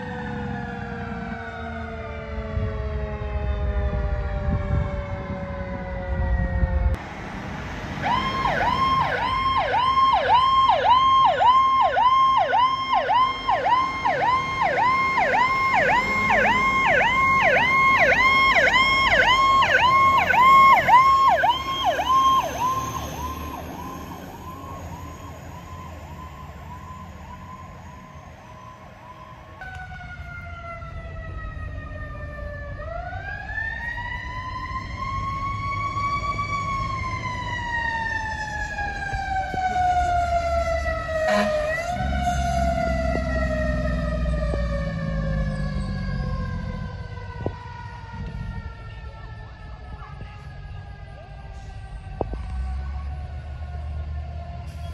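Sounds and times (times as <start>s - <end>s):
fire engine siren yelping: 0.0s - 7.0s, 7.6s - 54.9s
emergency siren wailing: 0.0s - 54.9s.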